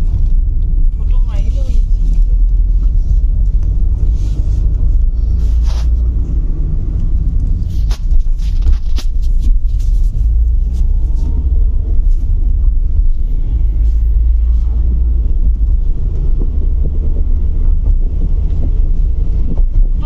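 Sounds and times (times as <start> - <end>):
car cabin road and engine rumble: 0.0 - 20.0.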